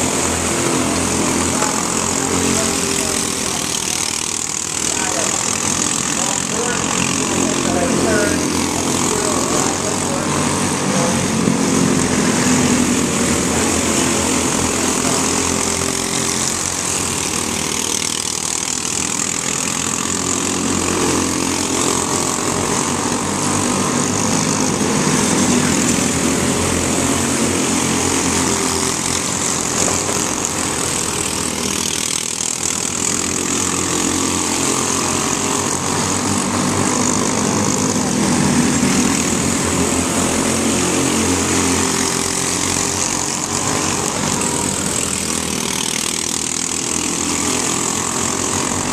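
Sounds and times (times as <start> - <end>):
race car engines running hard: 0.0 - 48.9.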